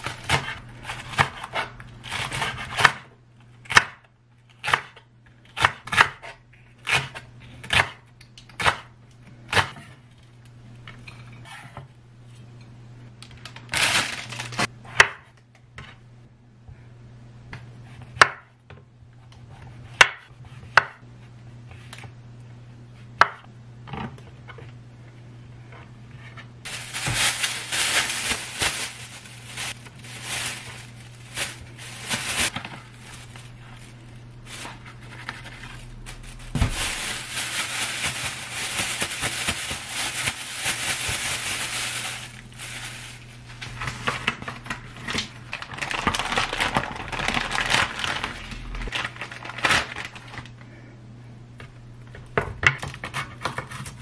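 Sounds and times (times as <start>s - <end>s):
plastic bags crinkling: 13.4s - 14.7s, 26.7s - 50.5s.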